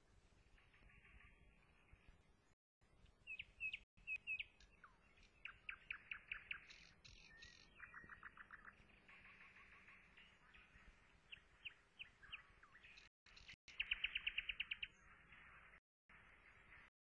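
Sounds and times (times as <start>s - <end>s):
songbirds chirping and trilling: 0.0s - 16.9s.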